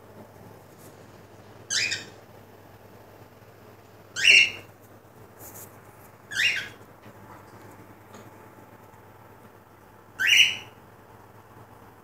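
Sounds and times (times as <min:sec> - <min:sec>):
cockatiel scratchy chirps: 0:01.7 - 0:02.2, 0:04.2 - 0:04.7, 0:06.3 - 0:06.8, 0:10.2 - 0:10.8.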